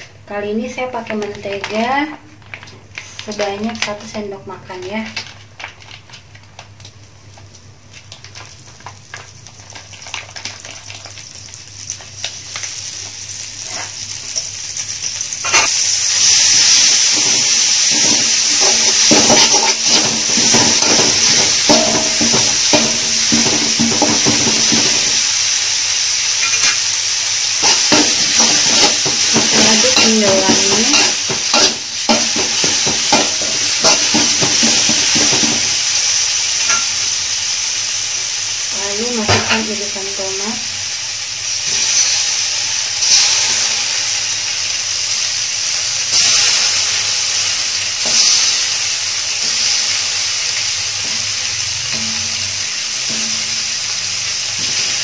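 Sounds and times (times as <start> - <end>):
butter sizzling in a wok: 0.0 - 55.0
loud frying hiss: 0.0 - 55.0
spatula scraping a wok: 15.4 - 15.8, 16.8 - 25.1, 27.6 - 35.6.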